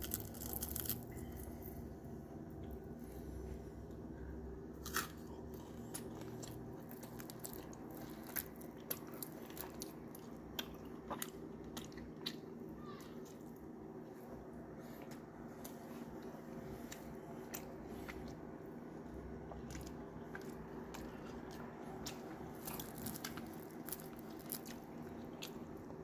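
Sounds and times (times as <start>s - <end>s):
chewing crispy fish: 0.0s - 1.8s, 4.0s - 13.7s, 16.8s - 26.0s
steady low hum: 0.0s - 26.0s.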